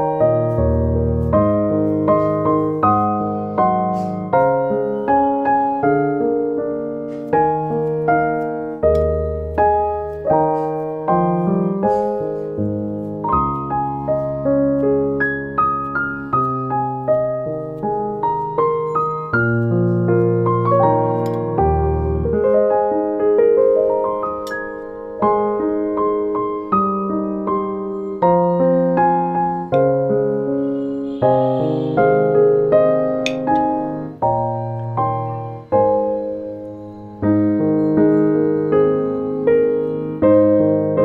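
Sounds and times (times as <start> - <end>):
piano music: 0.0 - 41.0.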